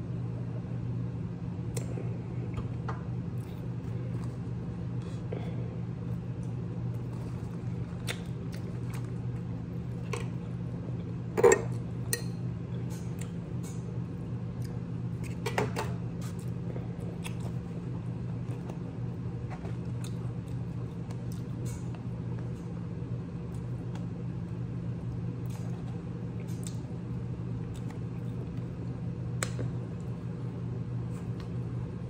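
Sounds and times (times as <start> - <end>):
steady low hum: 0.0 - 32.0
person chewing: 3.3 - 13.8, 16.1 - 22.6, 27.6 - 28.8.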